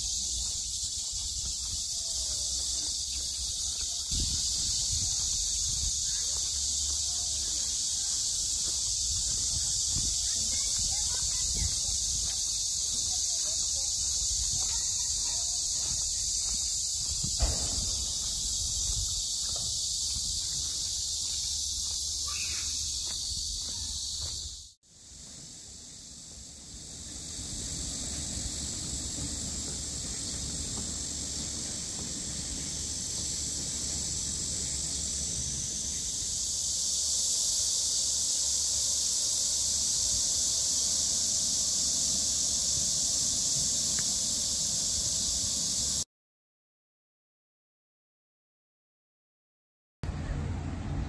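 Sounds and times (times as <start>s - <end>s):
cicada chorus drone: 0.0s - 46.0s
low rumble: 50.0s - 51.0s.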